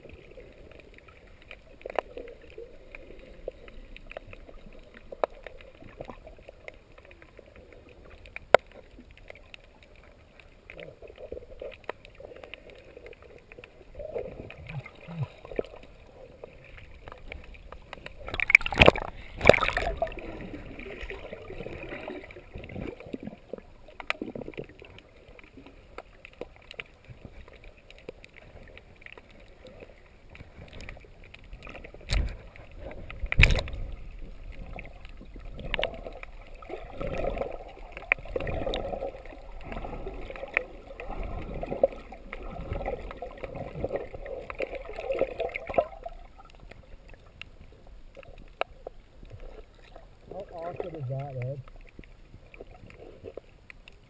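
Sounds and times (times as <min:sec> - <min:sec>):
muffled underwater gurgling: 0:10.7 - 0:25.2, 0:49.3 - 0:51.9.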